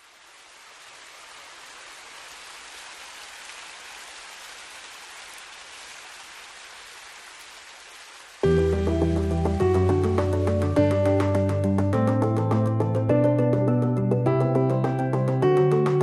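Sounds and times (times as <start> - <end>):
waterfall rushing: 0.0 - 10.7.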